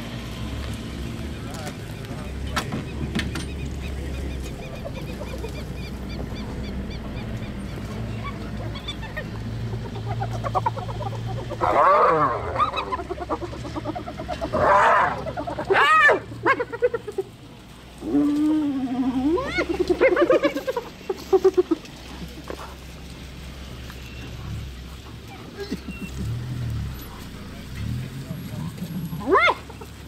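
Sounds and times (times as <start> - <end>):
hyenas squealing: 4.2 - 17.3, 18.0 - 21.8, 25.3 - 26.4, 28.8 - 30.0.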